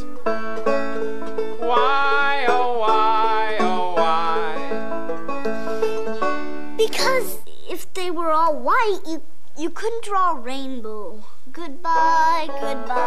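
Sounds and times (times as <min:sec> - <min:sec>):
plucked strings: 0:00.0 - 0:07.4
man singing: 0:01.6 - 0:04.9.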